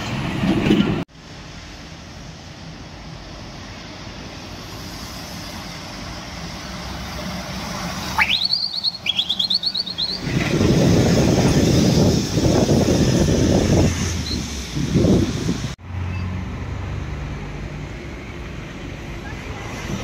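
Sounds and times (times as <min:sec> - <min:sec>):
truck diesel engine: 0:00.0 - 0:20.0
tyre noise of passing truck: 0:00.0 - 0:20.0
high squealing chirp: 0:08.2 - 0:10.3.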